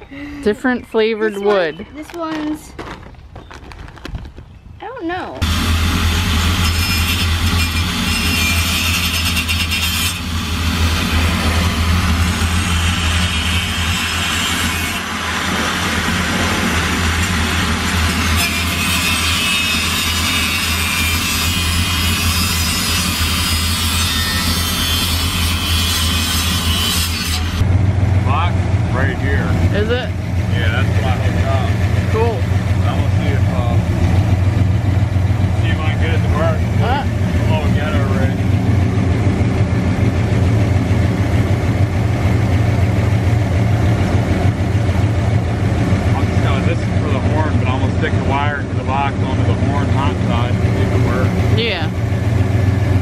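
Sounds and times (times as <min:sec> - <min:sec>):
constant low hum: 0:00.0 - 0:53.0
truck engine idling: 0:05.4 - 0:20.0, 0:27.4 - 0:53.0
power tool cutting exhaust pipe: 0:05.4 - 0:27.7.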